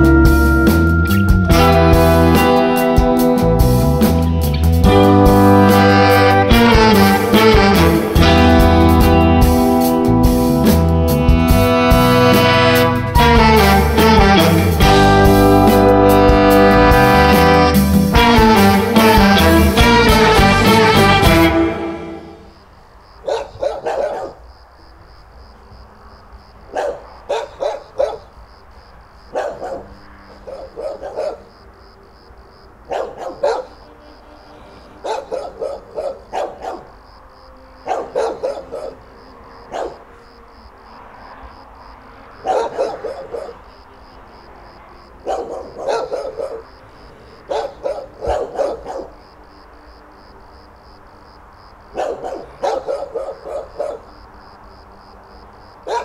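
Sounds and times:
dogs barking: 0:23.2 - 0:24.5, 0:26.6 - 0:28.4, 0:29.3 - 0:31.7, 0:32.7 - 0:33.9, 0:34.7 - 0:37.0, 0:37.7 - 0:40.2, 0:42.3 - 0:43.8, 0:45.0 - 0:49.4, 0:51.8 - 0:54.4, 0:55.8 - 0:56.0.

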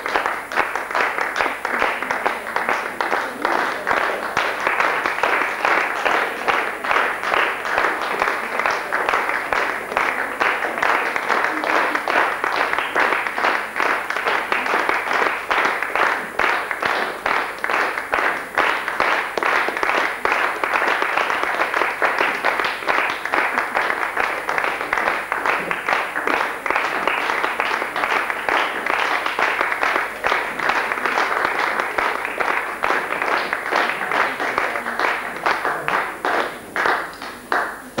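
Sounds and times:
audience applauding: 0:00.0 - 0:38.0.

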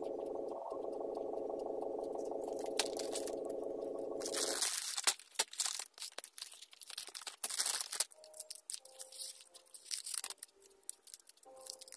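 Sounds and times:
steady buzzing tone: 0:00.0 - 0:04.5
plastic packaging crinkling: 0:04.2 - 0:11.9.

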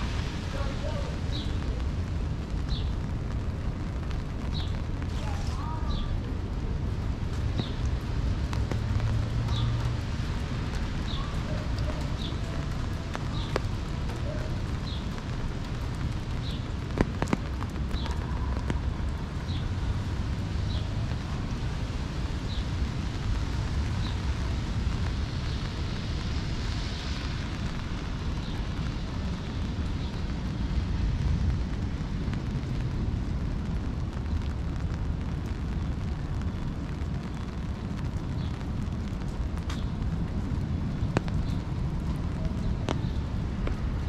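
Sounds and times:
steady rain falling: 0:00.0 - 0:44.0.

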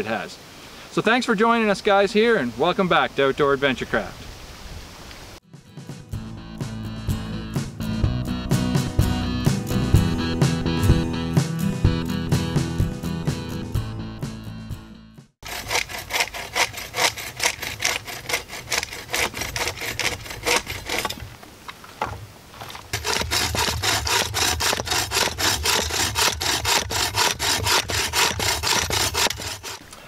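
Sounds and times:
saw cutting wood: 0:15.4 - 0:21.2, 0:22.9 - 0:30.0.

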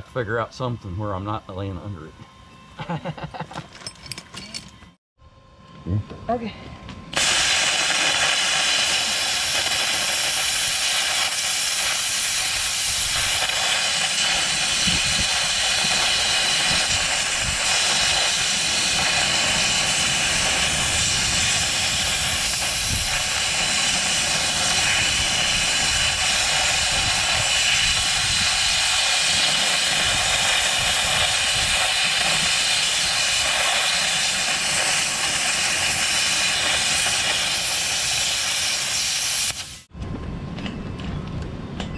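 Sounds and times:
plasma cutter arc hissing: 0:07.1 - 0:39.9.

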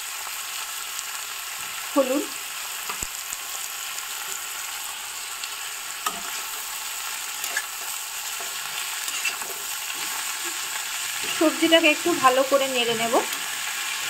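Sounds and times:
vegetables sizzling in oil: 0:00.0 - 0:14.0.

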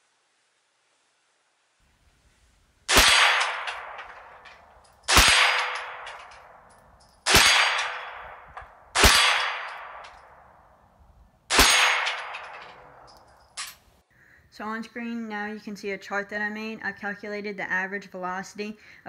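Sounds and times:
rifle shots echoing: 0:02.9 - 0:10.8, 0:11.5 - 0:13.7.

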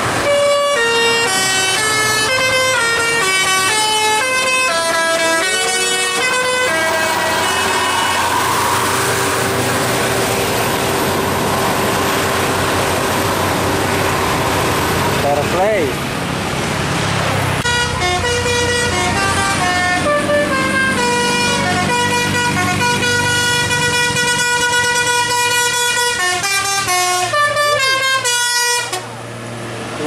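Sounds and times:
musical bus horn tune: 0:00.0 - 0:09.9, 0:17.6 - 0:29.1
bus engine humming: 0:00.0 - 0:30.0.

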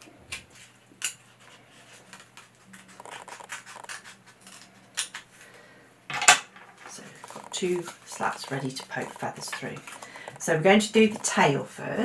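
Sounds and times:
scissors cutting cardboard: 0:01.8 - 0:05.2, 0:06.9 - 0:11.6.

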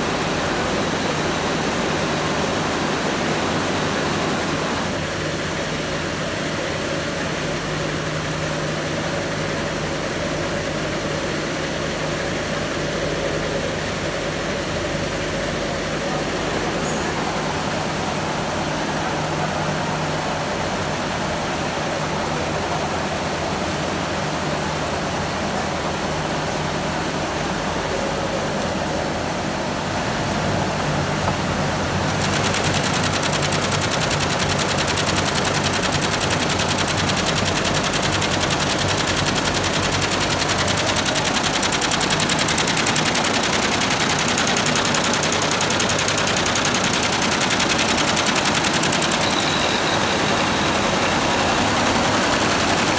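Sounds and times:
embroidery machine clattering: 0:32.0 - 0:52.9.

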